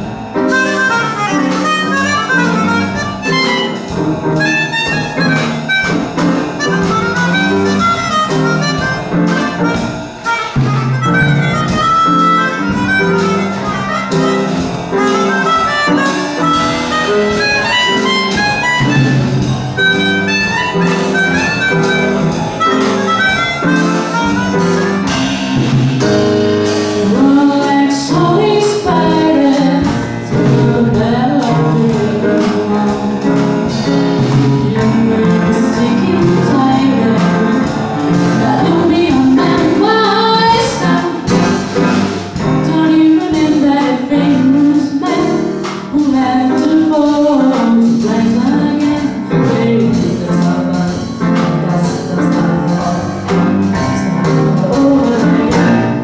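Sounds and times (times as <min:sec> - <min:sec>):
drum kit: 0:00.0 - 0:56.0
grand piano: 0:00.0 - 0:56.0
melodica: 0:00.5 - 0:25.1
woman singing: 0:27.0 - 0:33.8, 0:34.6 - 0:41.6, 0:42.5 - 0:56.0.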